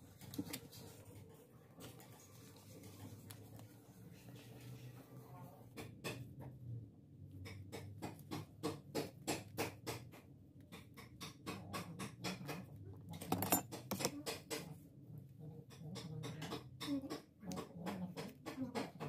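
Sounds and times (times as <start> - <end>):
scratchy rubbing on shoe: 0.6 - 5.3.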